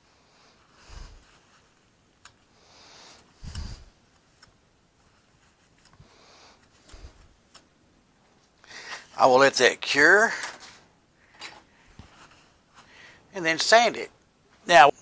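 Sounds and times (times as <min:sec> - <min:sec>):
breathing close to microphone: 0:00.0 - 0:01.6, 0:02.5 - 0:04.0, 0:08.6 - 0:09.2, 0:10.3 - 0:13.3.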